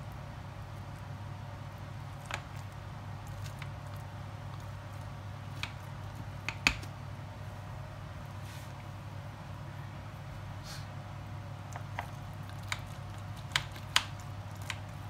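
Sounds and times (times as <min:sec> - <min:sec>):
blade squishing through pasta bake: 0:00.1 - 0:07.0, 0:11.6 - 0:15.0.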